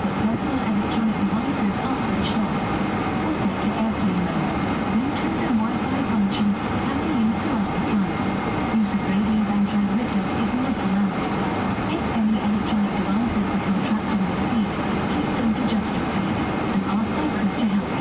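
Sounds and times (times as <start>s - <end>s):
aircraft cabin drone: 0.0s - 18.0s.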